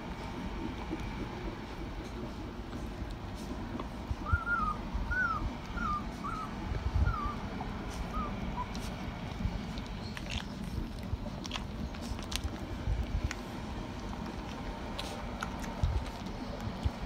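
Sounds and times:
puppy whimpering: 4.2s - 8.9s.

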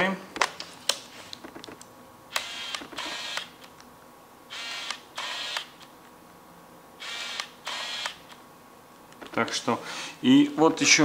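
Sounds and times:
lens autofocus motor whirring: 2.3s - 3.7s, 4.5s - 5.9s, 7.0s - 8.4s.

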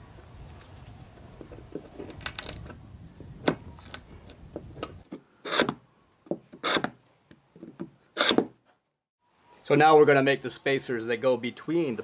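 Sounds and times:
steel tool scraping wood: 5.0s - 5.8s.

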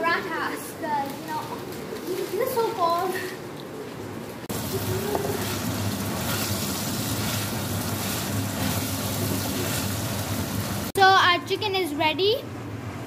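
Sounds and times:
chicken sizzling in oil: 4.5s - 11.0s.

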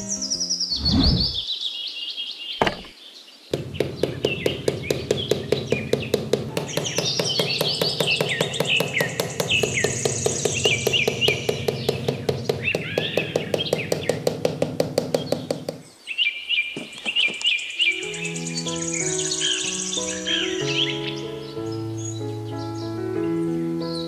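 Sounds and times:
birds chirping: 0.0s - 24.0s
hammer tapping wooden stick: 3.5s - 15.8s.

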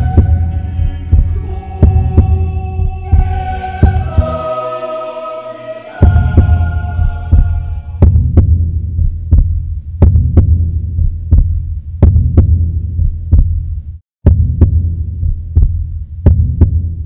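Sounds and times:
heartbeat-like thuds: 0.0s - 4.4s, 6.0s - 17.0s
steady low drone: 0.0s - 9.8s.

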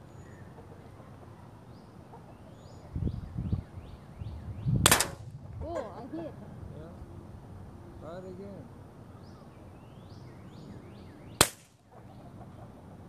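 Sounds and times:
bird chirping: 0.0s - 4.8s, 9.0s - 13.0s
air pistol shot: 4.8s - 5.3s, 11.4s - 11.8s.

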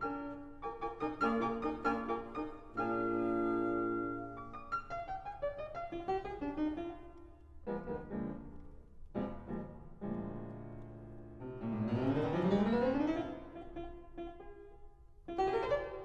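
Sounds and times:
fortepiano and wind quintet playing: 0.0s - 7.0s, 11.4s - 14.7s.

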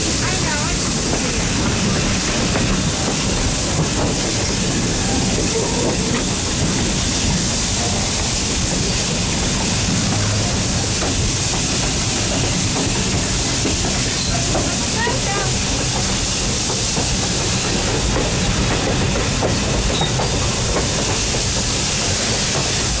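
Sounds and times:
steam hissing: 0.0s - 23.0s
train wheels on rails: 0.0s - 23.0s.

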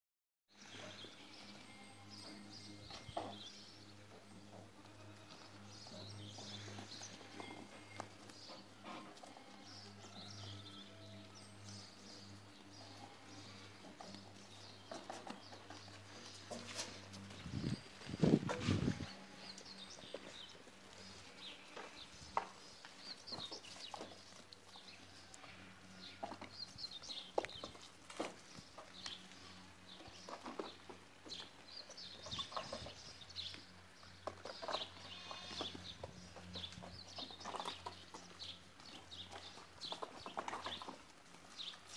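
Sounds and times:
hooves scuffing on dirt: 0.8s - 41.9s.

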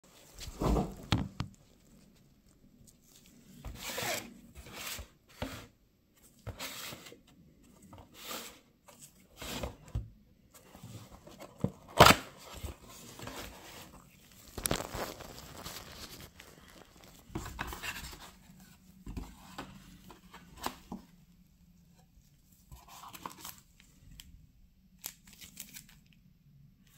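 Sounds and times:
cardboard boxes scraping and rustling: 3.6s - 5.7s, 6.3s - 7.2s, 7.9s - 9.9s, 10.6s - 15.0s, 17.3s - 20.9s.

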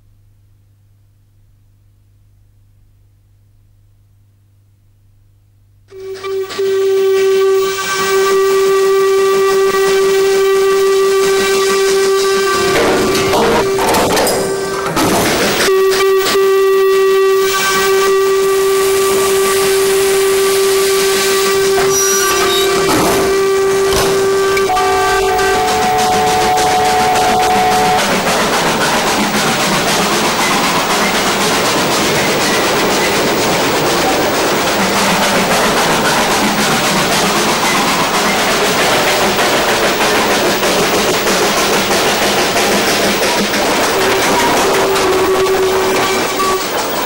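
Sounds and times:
train whistle blowing: 5.9s - 47.0s
steam hiss: 14.4s - 25.0s.

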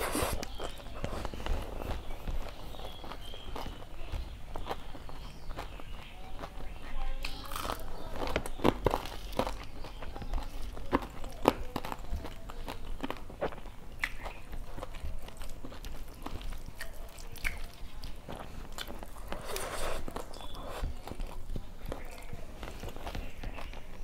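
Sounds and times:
chewing and crunching food: 0.0s - 24.0s
wet mouth clicks: 13.5s - 14.3s.

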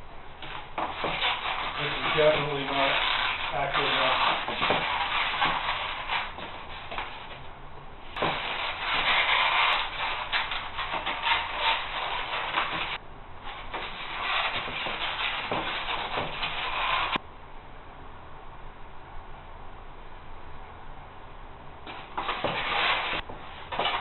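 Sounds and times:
foam rubbing and rustling: 0.4s - 7.5s, 8.1s - 17.2s, 21.9s - 24.0s.

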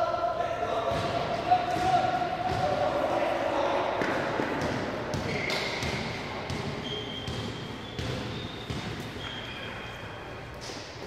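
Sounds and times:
basketballs bouncing with echo: 0.5s - 11.0s
sneakers squeaking: 4.0s - 11.0s.

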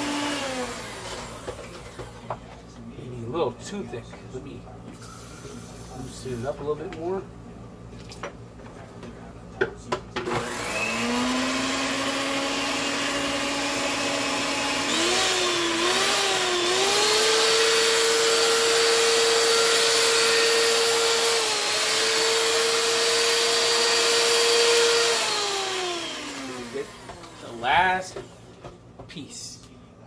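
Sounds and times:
electric mixer whirring: 0.0s - 2.4s, 10.2s - 28.6s.

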